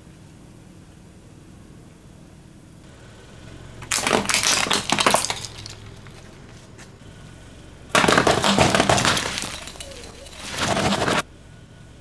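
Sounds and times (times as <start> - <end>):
low car hum: 0.0 - 12.0
tyre crushing brittle objects: 3.8 - 6.9, 7.9 - 11.2.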